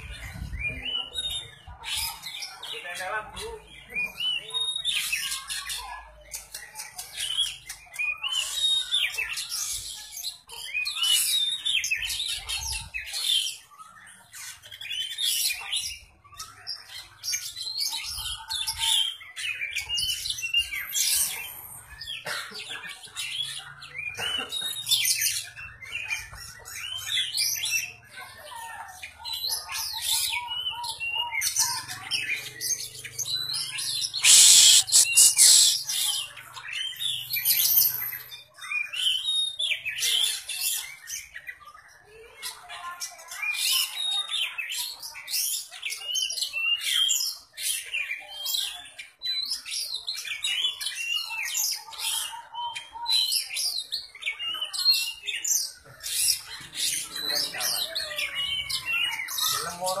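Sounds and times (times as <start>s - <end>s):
bird singing chirps and whistles: 32.8s - 40.0s.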